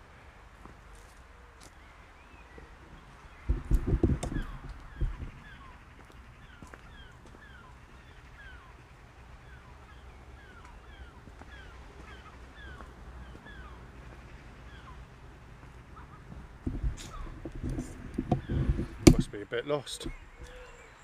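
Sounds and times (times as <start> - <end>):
bird chick cheeping: 20.0 - 21.0.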